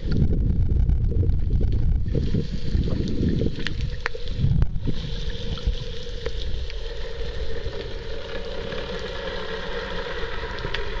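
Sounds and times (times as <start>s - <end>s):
low underwater rumble: 0.0s - 11.0s.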